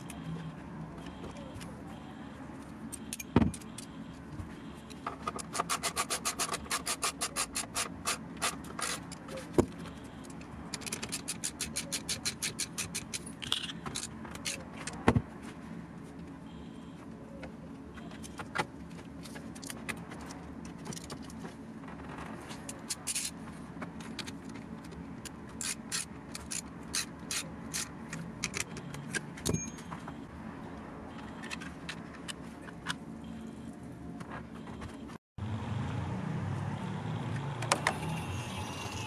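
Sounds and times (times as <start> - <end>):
parts clicking and rattling: 4.6 - 15.2, 17.9 - 30.2.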